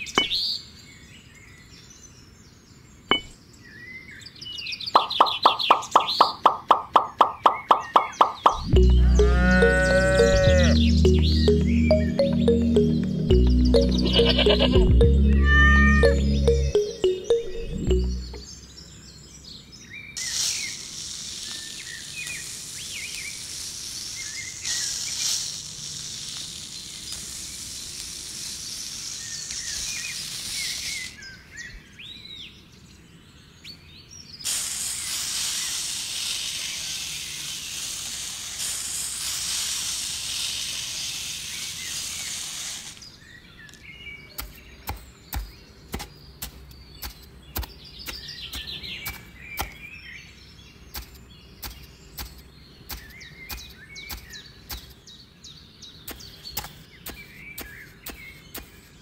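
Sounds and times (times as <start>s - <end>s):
birds chirping: 0.0s - 23.4s, 43.0s - 59.0s
sand pouring hiss: 20.2s - 31.2s, 34.4s - 43.2s.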